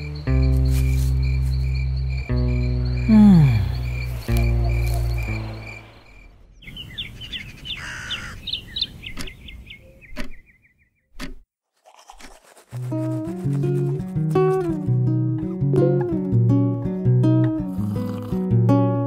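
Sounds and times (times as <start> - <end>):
low sustained musical tone: 0.0 - 3.1, 3.7 - 6.4
crickets chirping: 0.0 - 8.9
birds chirping and trilling: 0.0 - 11.2
sharp clicks: 9.1 - 9.4.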